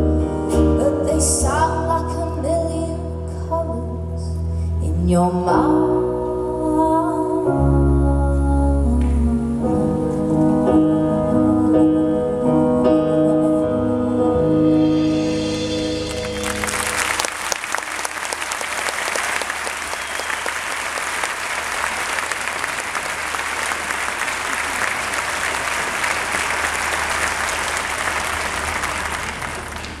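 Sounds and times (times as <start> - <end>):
keyboard chord: 0.0 - 4.0, 5.0 - 17.3
audience applauding: 16.0 - 30.0.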